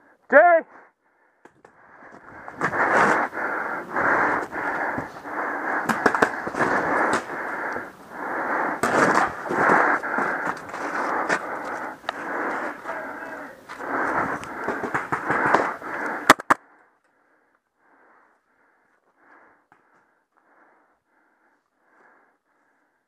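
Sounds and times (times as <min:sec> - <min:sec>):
sharp clicks: 0:14.3 - 0:16.6.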